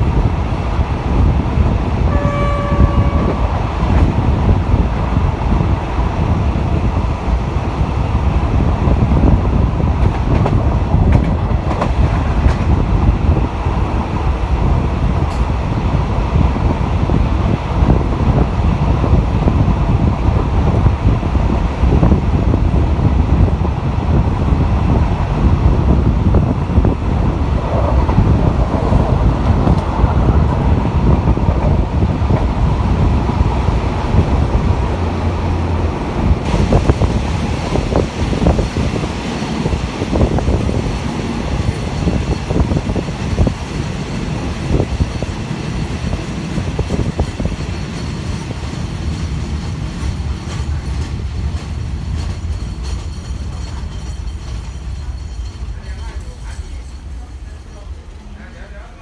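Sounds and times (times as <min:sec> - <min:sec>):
wind noise: 0:00.0 - 0:57.6
train wheels and engine rumbling: 0:00.0 - 0:59.0
wheels clicking over rail joints: 0:36.4 - 0:58.4.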